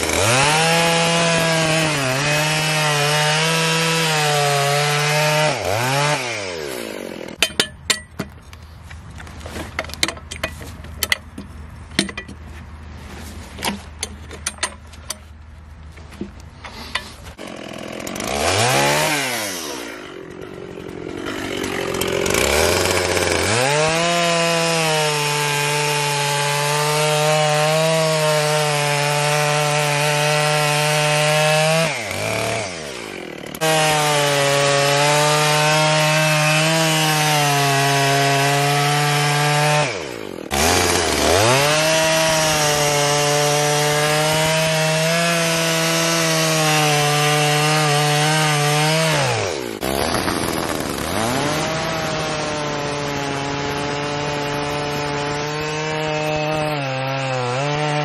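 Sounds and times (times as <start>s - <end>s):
chainsaw idling and revving: 0.0s - 7.4s, 17.3s - 58.0s
chainsaw cutting through log: 0.0s - 7.6s, 16.8s - 58.0s.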